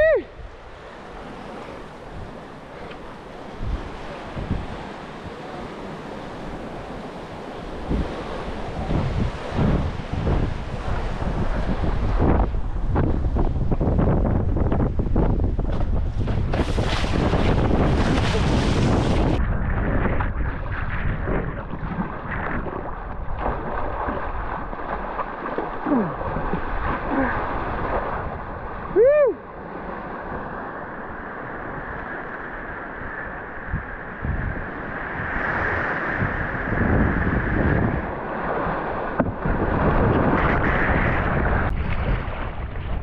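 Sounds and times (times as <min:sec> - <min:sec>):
rushing water: 0:00.0 - 0:43.0
wind buffeting microphone: 0:00.0 - 0:43.0.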